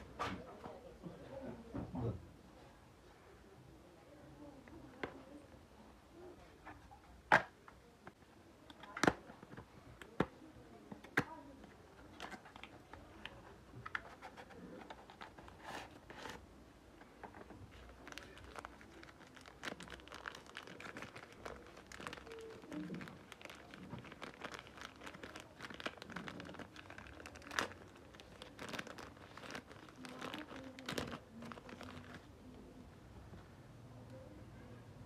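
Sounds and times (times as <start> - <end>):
plastic pouch crinkling: 17.7 - 32.3.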